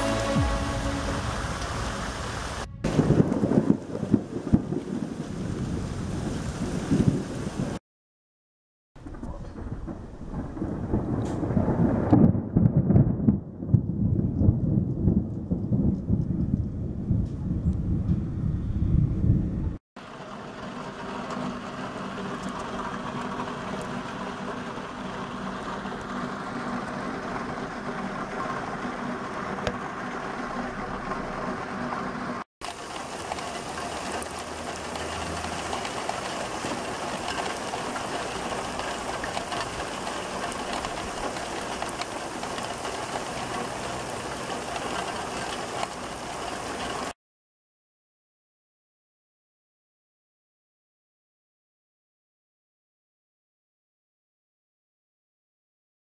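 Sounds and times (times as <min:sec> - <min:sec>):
heavy rain pouring: 0:00.0 - 0:07.8, 0:09.3 - 0:15.9, 0:20.0 - 0:47.2.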